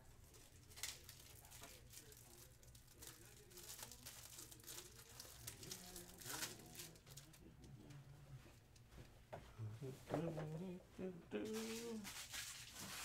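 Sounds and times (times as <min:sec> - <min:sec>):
light crinkling: 0:00.2 - 0:09.2.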